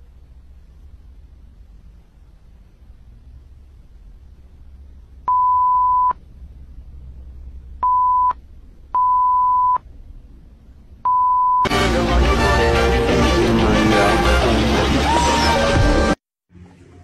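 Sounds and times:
faint room noise: 0.0 - 11.6
censor bleep tone: 5.3 - 6.2, 7.8 - 8.4, 9.0 - 9.8, 11.1 - 11.7.

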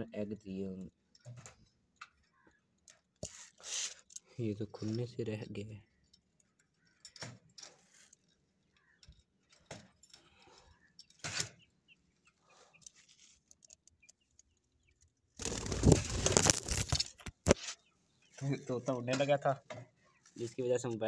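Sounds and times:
wire cage clicks and rattles: 6.0 - 11.6.

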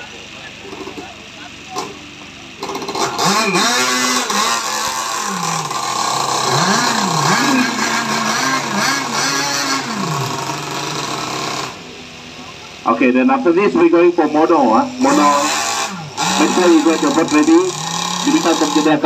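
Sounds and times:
outboard motor revving: 2.5 - 12.0, 14.4 - 19.0.

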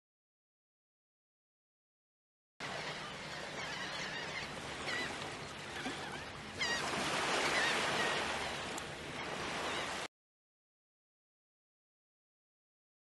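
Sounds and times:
seagulls calling: 2.6 - 10.1
surf washing: 2.6 - 10.1
wave breaking: 4.9 - 10.1.

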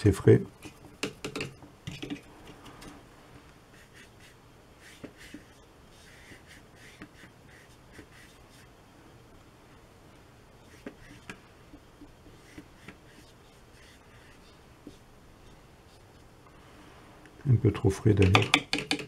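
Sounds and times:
brush scratching on paper: 3.7 - 8.7, 10.6 - 16.1.

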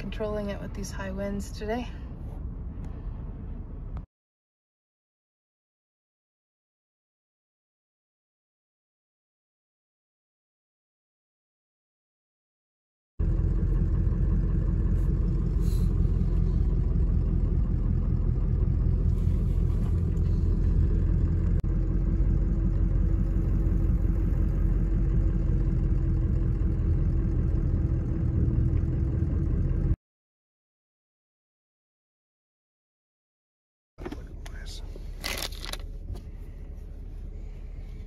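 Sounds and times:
wind buffeting vehicle: 0.0 - 4.0, 13.2 - 30.0.

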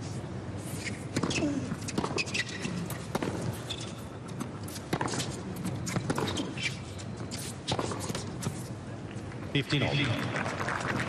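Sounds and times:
rackets hitting tennis ball: 1.1 - 6.7
ball bouncing: 4.9 - 6.5.

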